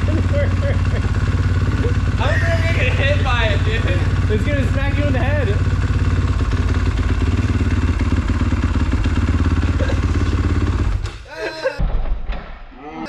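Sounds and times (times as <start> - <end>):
dirt bike engine running: 0.0 - 11.2.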